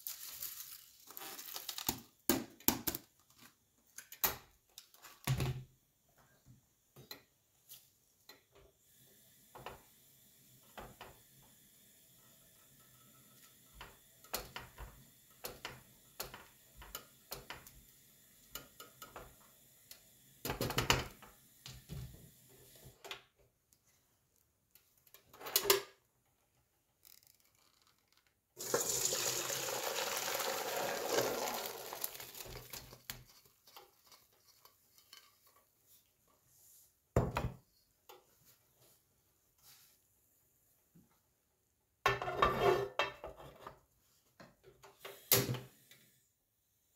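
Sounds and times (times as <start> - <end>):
water poured through colander: 0.0 - 1.9, 28.6 - 35.6
boiling water: 8.5 - 22.9, 28.6 - 35.6.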